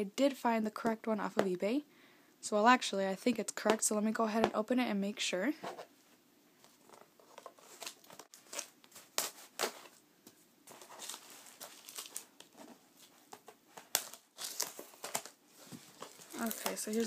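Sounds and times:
tape ripping: 7.2s - 10.0s, 10.7s - 17.0s.

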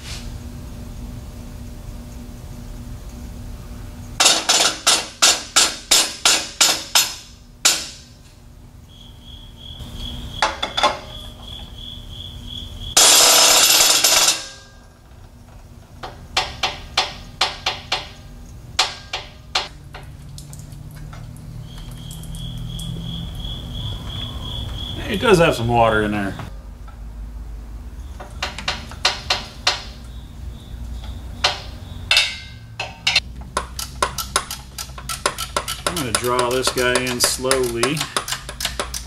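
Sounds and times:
faint high pulsing chirp: 21.6s - 25.6s
hydraulic hoist metallic clicks: 31.4s - 39.0s.

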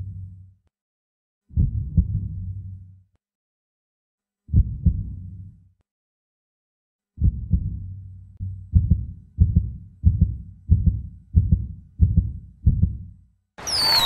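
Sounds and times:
heartbeat thumps: 1.6s - 2.4s, 4.5s - 5.2s, 7.2s - 7.8s, 8.4s - 13.1s.

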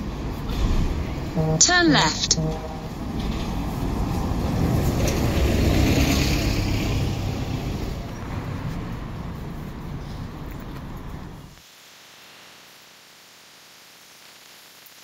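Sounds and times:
vehicle engine rumble: 0.0s - 11.6s.

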